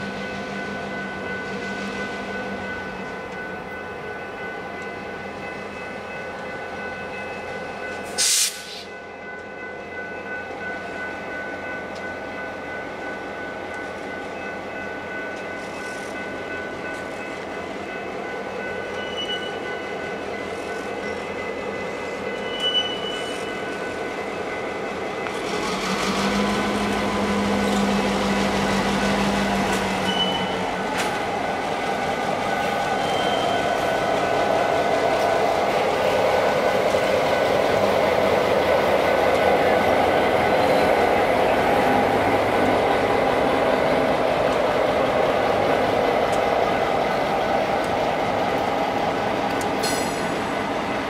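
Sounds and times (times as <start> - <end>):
diesel locomotive passing: 0.0 - 51.0
sharp air hiss: 8.1 - 8.9.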